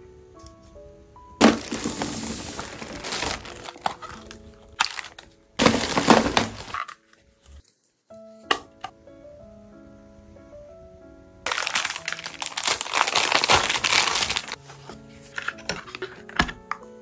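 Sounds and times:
soft background music: 0.0s - 17.0s
plastic bag crinkling: 1.4s - 7.1s, 11.5s - 14.6s.

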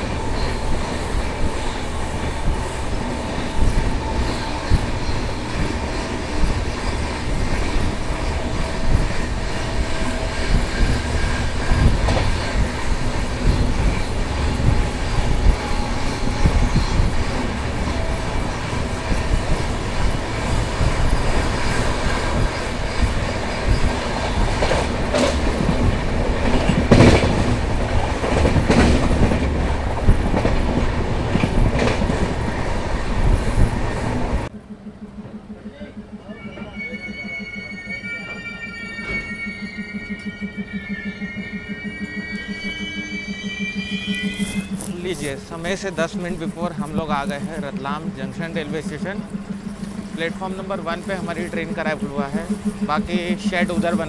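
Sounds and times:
wheels clacking over rail joints: 0.0s - 36.1s
train rumble: 0.0s - 54.0s.

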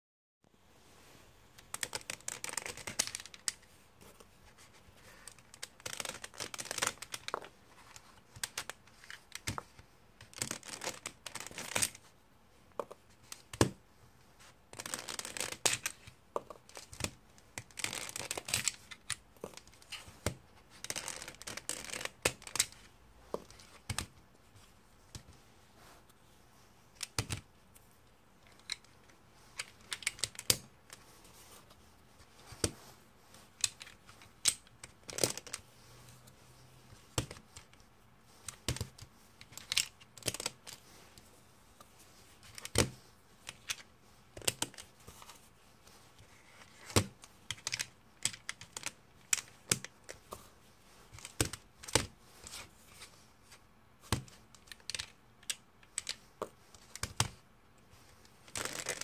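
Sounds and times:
puzzle cube clicking: 14.8s - 24.1s.

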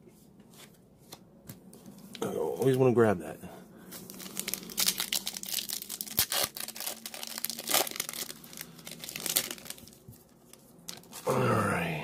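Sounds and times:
foil wrapper tearing and crinkling: 4.0s - 11.2s.

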